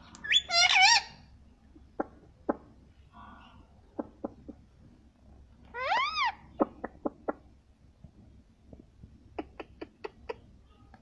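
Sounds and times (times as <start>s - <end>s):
parakeet call: 0.2s - 1.2s.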